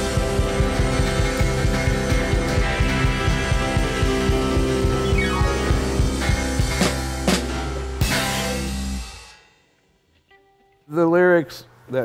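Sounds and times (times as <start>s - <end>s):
rock band playing live: 0.0s - 9.5s.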